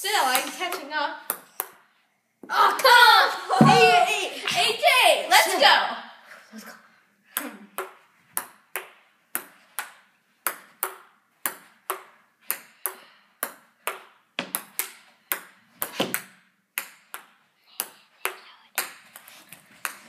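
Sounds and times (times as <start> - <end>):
ping-pong ball hitting paddles: 7.4 - 20.0.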